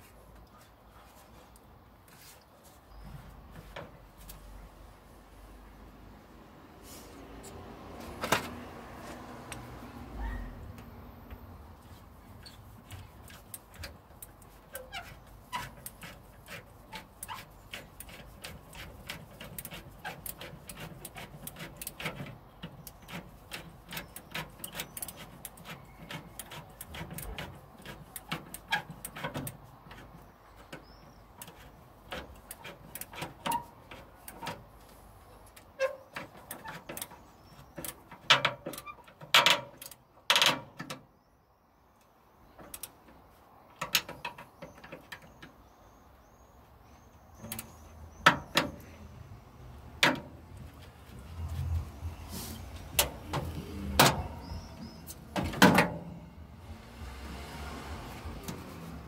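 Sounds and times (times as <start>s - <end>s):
metallic clicks and scrapes: 11.8s - 41.0s, 47.4s - 49.0s, 50.0s - 56.2s.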